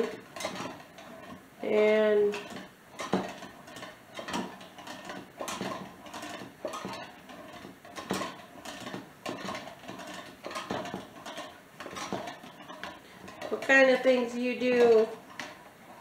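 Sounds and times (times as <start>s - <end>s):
butter churn gears clicking: 0.0s - 16.0s
churn handle knocking: 2.3s - 13.7s.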